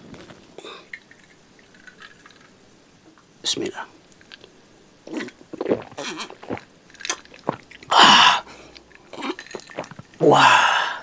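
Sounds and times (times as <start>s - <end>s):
person sipping and swallowing: 5.1s - 10.5s.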